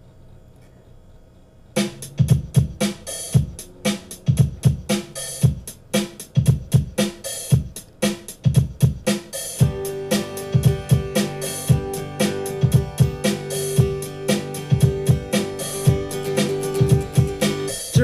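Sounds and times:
faint low hum: 0:00.0 - 0:07.0
drum beat: 0:01.8 - 0:18.0.

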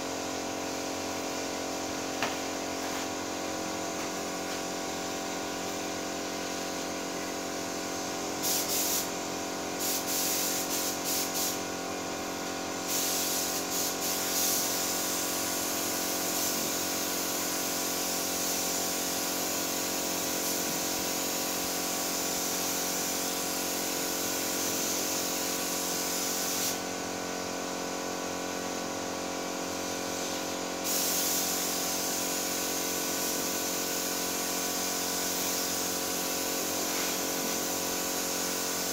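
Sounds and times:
paint spray gun hissing: 0:00.0 - 0:38.9.

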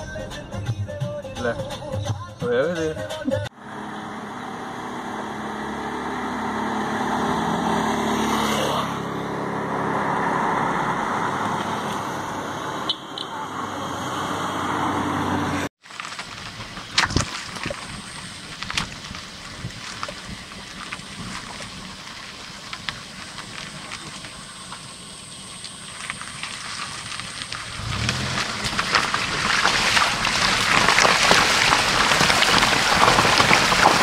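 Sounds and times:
car engine running: 0:03.5 - 0:34.0
tyres on wet gravel: 0:15.5 - 0:34.0.

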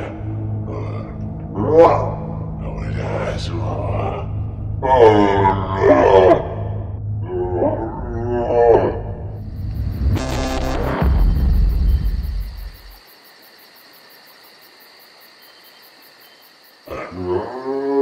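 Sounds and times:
cartoon zombie growling voice: 0:03.9 - 0:09.2, 0:16.9 - 0:18.0
deep rumble: 0:06.5 - 0:13.0.

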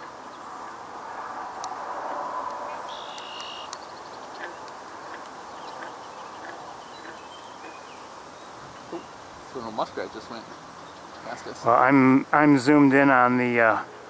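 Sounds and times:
high bird whistle: 0:02.3 - 0:03.8
faint bird chirps: 0:02.3 - 0:04.7.

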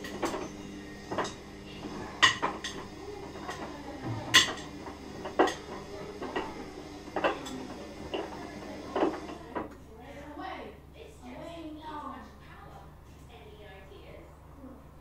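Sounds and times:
bowls and utensils clinking: 0:00.0 - 0:09.8.

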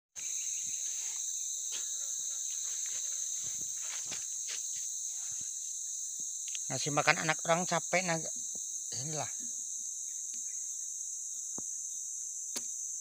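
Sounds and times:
high-pitched insect chorus: 0:00.2 - 0:13.0
footsteps and knocks on wood: 0:02.6 - 0:04.9.

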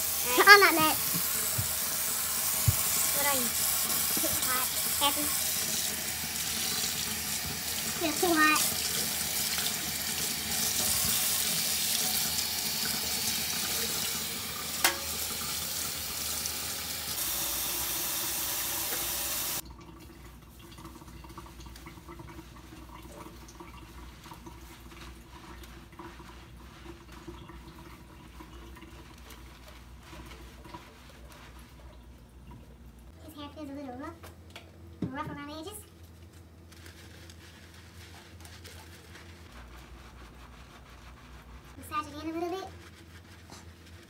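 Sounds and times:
faucet running into sink: 0:00.0 - 0:29.4.

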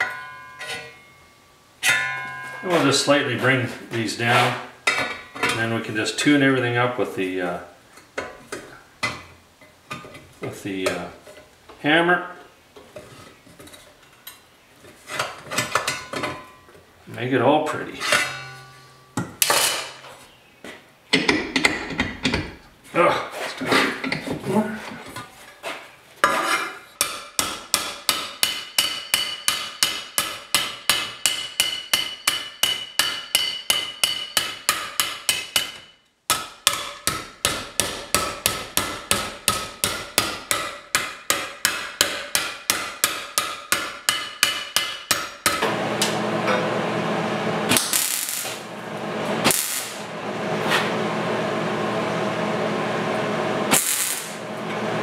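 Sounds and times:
hammer ringing on sheet steel: 0:00.0 - 0:01.2, 0:01.8 - 0:03.1, 0:18.1 - 0:19.2, 0:27.0 - 0:46.2
hissing buzz: 0:47.5 - 0:51.0, 0:53.2 - 0:55.0.

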